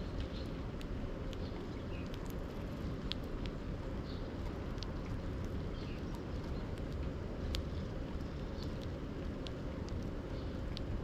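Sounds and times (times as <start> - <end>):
beaks tapping on wood: 0.1 - 11.0.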